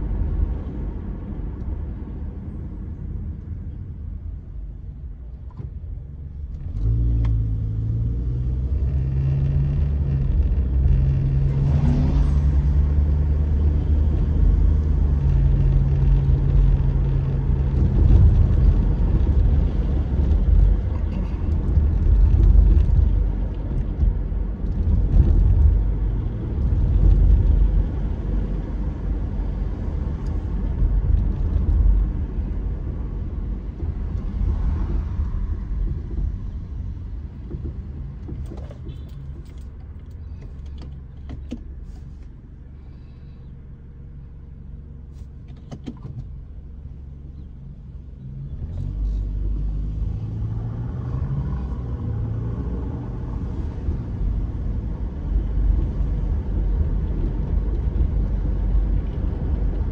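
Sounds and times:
car road noise: 0.0 - 59.9.

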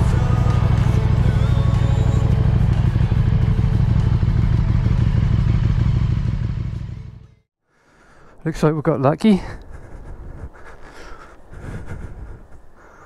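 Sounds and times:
motorcycle engine running: 0.0 - 7.5.

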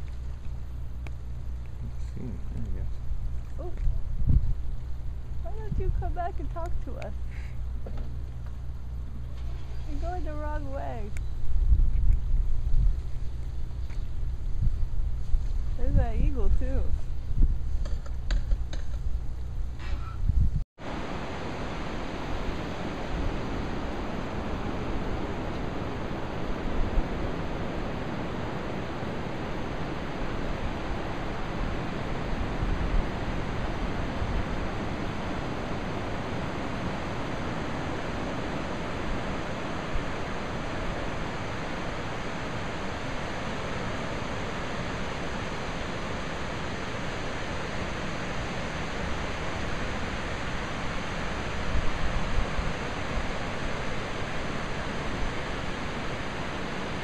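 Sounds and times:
low rumble: 0.0 - 56.6
wind on microphone: 1.8 - 4.8, 5.4 - 7.0, 9.8 - 57.0
surf rushing: 20.8 - 57.0.

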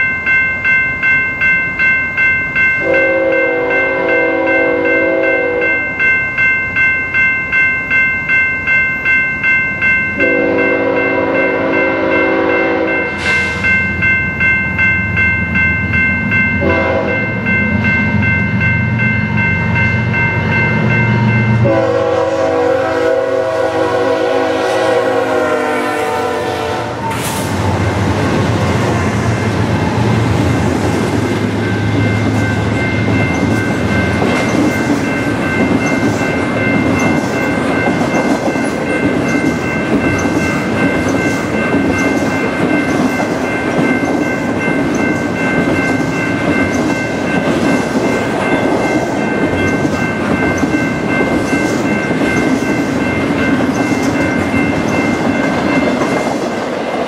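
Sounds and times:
crossing bells ringing: 0.0 - 57.0
train rumbling and clattering: 0.0 - 57.0
locomotive horn blasts: 2.8 - 5.7, 10.2 - 13.1, 16.6 - 17.3, 21.6 - 27.4.

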